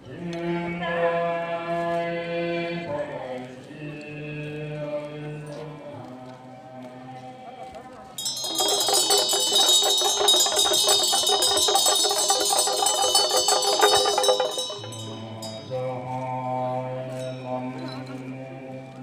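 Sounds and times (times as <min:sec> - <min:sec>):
ringing metal percussion roll: 0:07.2 - 0:18.1.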